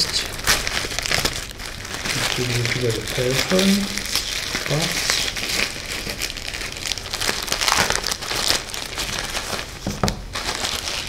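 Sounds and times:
plastic packaging crinkling: 0.0 - 11.0.

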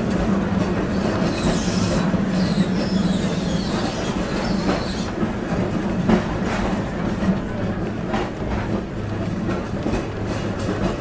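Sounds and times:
tram rumbling on rails: 0.0 - 11.0
wheels clacking over rail joints: 0.0 - 11.0
faint wheel squeal: 1.0 - 5.1.

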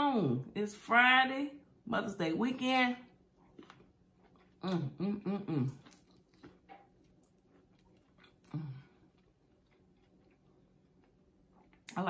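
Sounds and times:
soft chewing clicks and smacks: 3.4 - 4.9, 5.7 - 12.0.

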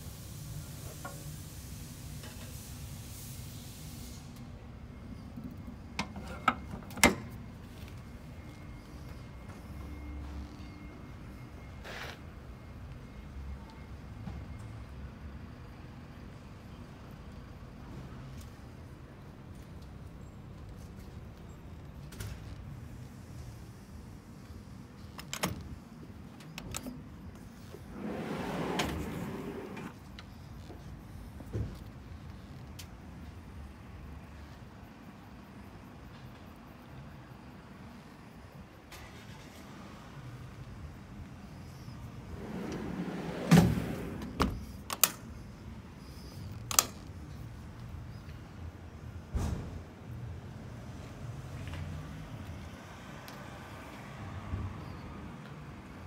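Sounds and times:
drawer rolling on metal slides: 6.0 - 7.2, 27.6 - 30.0, 42.1 - 44.7
drawer clunk: 42.4 - 44.6
latch clicks: 43.5 - 45.3.

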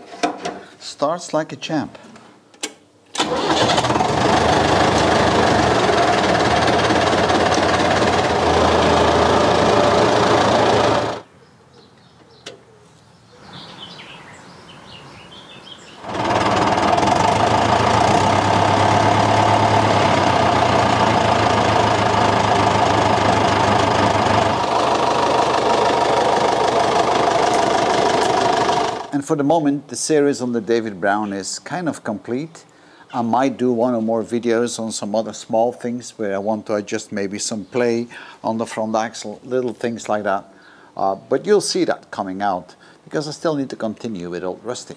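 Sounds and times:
tractor diesel engine running: 3.2 - 11.3, 16.0 - 29.1.

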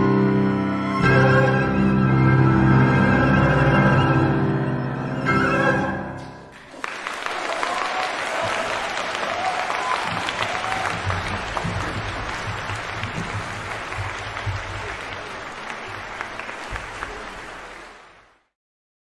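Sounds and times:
audience applauding: 6.5 - 18.5.

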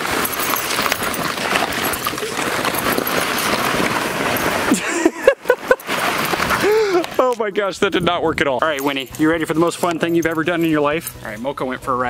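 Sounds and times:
fabric dragged over grass: 0.0 - 7.3
plastic balls clattering: 0.0 - 7.4.

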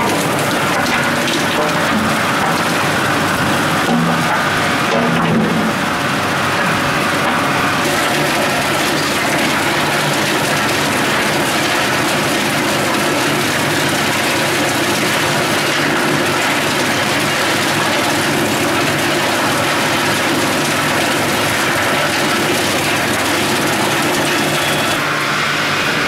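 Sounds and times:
feed conveyor rattling wood: 0.0 - 25.1
wood chipper running: 0.0 - 26.0.

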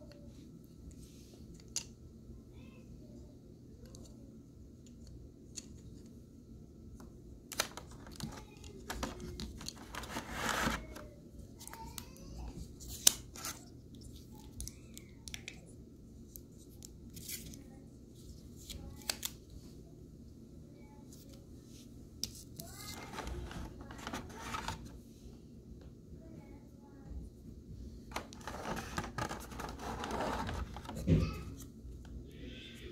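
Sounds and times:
plastic scrape: 7.6 - 11.0, 22.9 - 24.9, 28.1 - 31.2.

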